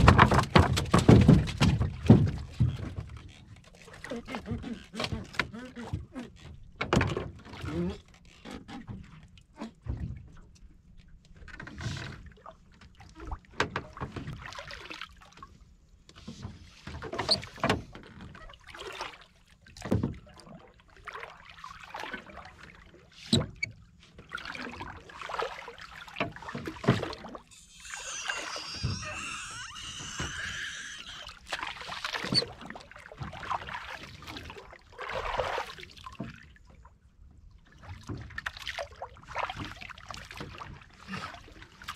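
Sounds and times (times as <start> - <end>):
knocks on wooden boat: 0.0 - 3.0.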